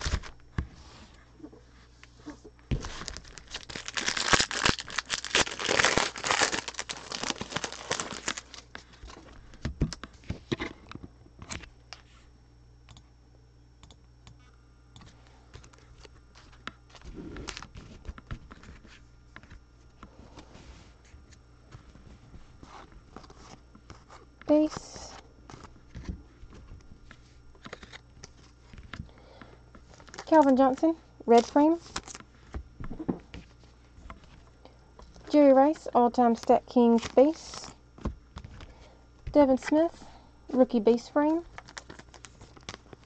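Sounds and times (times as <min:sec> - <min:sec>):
plastic wrapper tearing and crinkling: 0:00.0 - 0:00.4, 0:02.7 - 0:09.2, 0:16.0 - 0:18.0, 0:27.6 - 0:28.4, 0:29.9 - 0:30.8, 0:31.4 - 0:32.2, 0:41.4 - 0:43.0
cards being handled: 0:02.2 - 0:12.1, 0:15.6 - 0:20.5, 0:21.2 - 0:29.1, 0:41.3 - 0:43.0.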